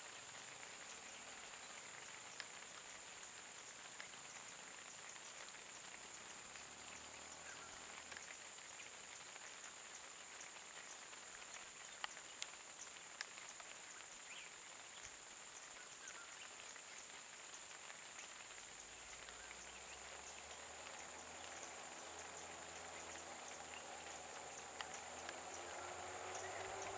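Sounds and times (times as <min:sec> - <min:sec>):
sharp ticks: 0:22.7 - 0:26.9.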